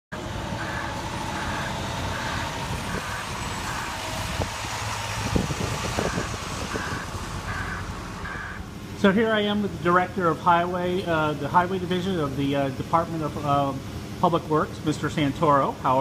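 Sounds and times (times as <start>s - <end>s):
low engine rumble: 0.1s - 16.0s
backup alarm beeping: 0.6s - 4.0s, 6.0s - 8.7s.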